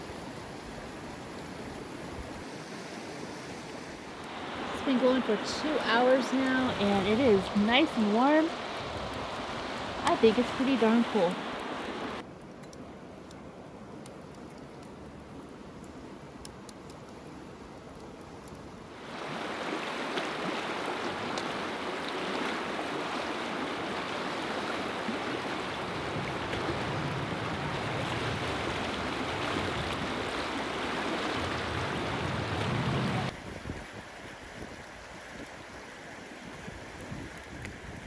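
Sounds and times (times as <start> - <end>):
fire crackling: 1.2 - 33.4
fast river rushing: 1.8 - 12.2, 18.9 - 33.4
wind buffeting microphone: 25.0 - 35.6.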